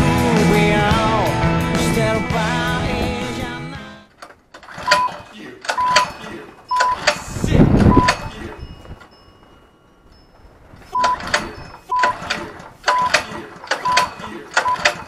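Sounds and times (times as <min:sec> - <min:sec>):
music with a steady beat: 0:00.0 - 0:03.8
recoil starter cranking engine: 0:04.1 - 0:09.3, 0:10.1 - 0:15.0.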